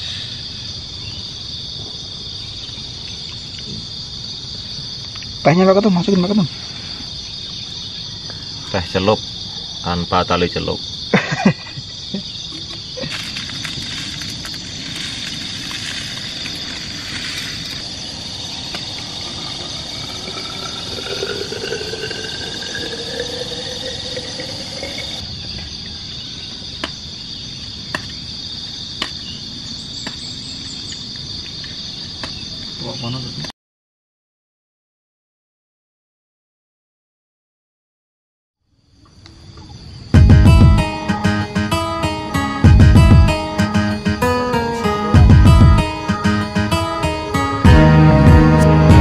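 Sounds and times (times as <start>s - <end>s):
shrill insect chorus: 0.0s - 33.5s, 38.6s - 48.9s
water poured into a vessel: 18.6s - 25.2s.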